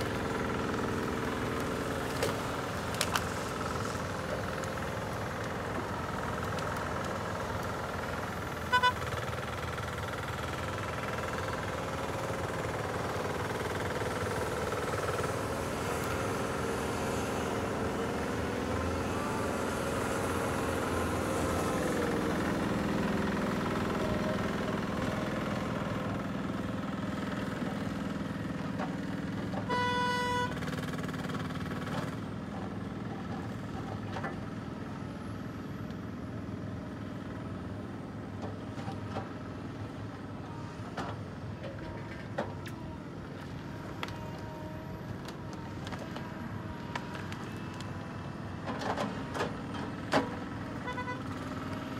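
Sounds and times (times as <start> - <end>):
engine running: 0.0 - 51.9
short horn toot: 29.7 - 30.6.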